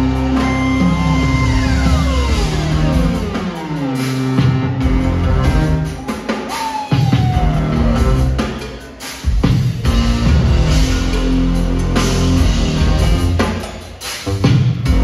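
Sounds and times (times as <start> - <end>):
band playing falling glides: 0.0 - 8.8.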